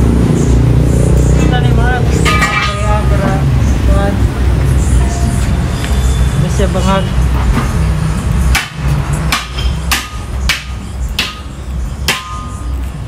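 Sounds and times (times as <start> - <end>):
hammer striking metal: 8.5 - 12.9.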